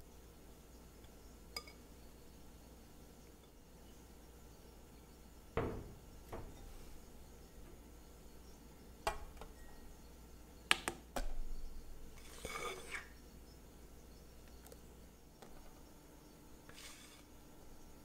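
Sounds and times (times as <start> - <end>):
glass bowl clinking on metal: 1.6 - 1.8
dull knock: 5.6 - 6.6
short scrape: 16.7 - 17.3.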